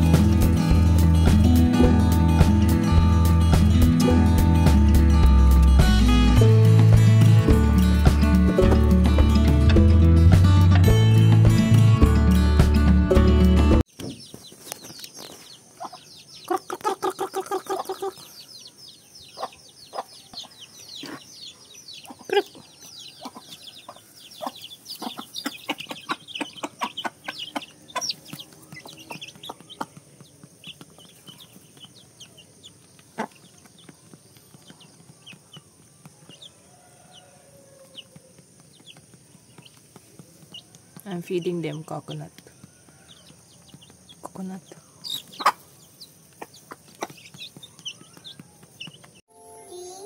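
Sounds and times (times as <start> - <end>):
chicks peeping: 13.9 - 49.2
hen clucking: 15.8 - 18.5, 19.2 - 33.9, 40.5 - 49.0.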